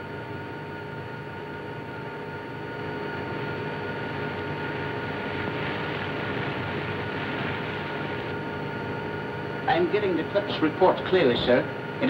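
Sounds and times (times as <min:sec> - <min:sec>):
airliner propeller engines droning: 0:00.0 - 0:12.0
film soundtrack hiss: 0:02.0 - 0:12.0.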